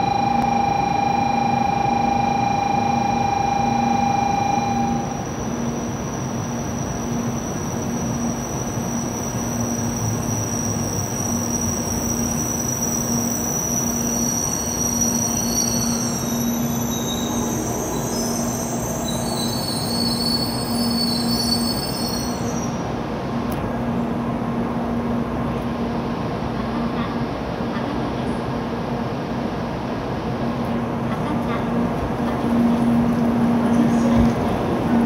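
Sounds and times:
high-pitched brake squeal: 0.0s - 22.8s
train rumble: 0.0s - 35.0s.

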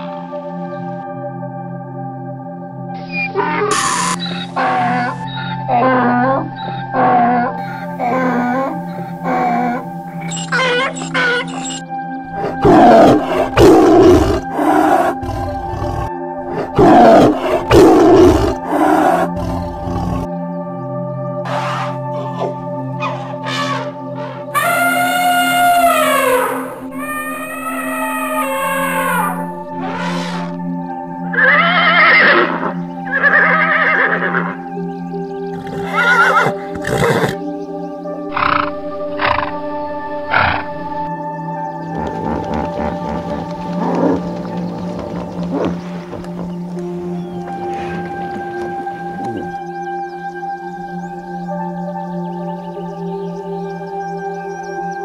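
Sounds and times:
background music: 0.0s - 55.0s
tiger roaring: 12.3s - 20.3s, 21.5s - 30.6s, 38.3s - 39.6s, 40.2s - 41.0s, 41.9s - 49.6s
horse whinnying: 21.5s - 30.6s, 31.3s - 34.6s, 35.6s - 37.4s, 41.9s - 49.6s.

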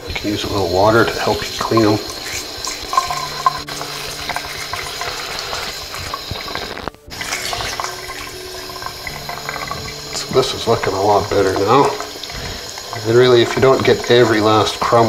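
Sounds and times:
tap water splashing into sink: 0.0s - 15.0s.

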